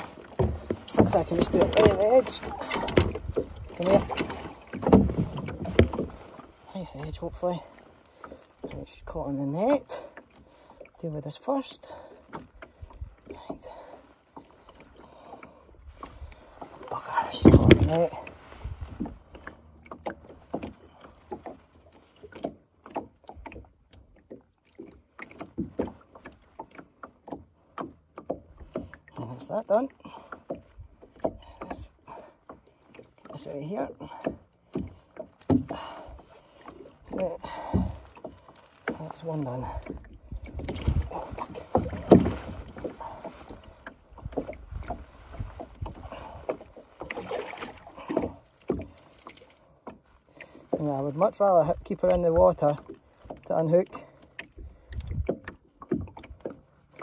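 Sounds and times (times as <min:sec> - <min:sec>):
water slapping against boat: 0:00.0 - 0:57.0.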